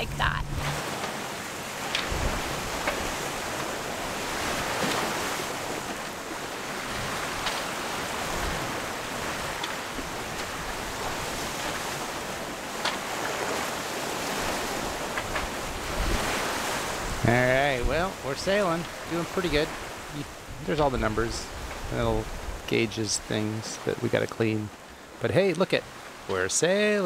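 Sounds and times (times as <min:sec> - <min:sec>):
water rushing along hulls: 0:00.0 - 0:27.0
wind on microphone: 0:02.0 - 0:23.4.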